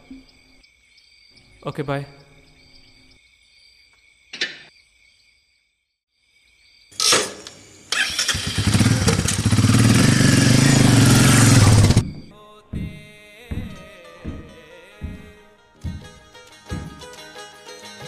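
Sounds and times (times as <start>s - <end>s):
motorcycle engine starting and running: 7.0s - 12.1s
knock: 12.0s - 15.3s, 15.9s - 17.0s.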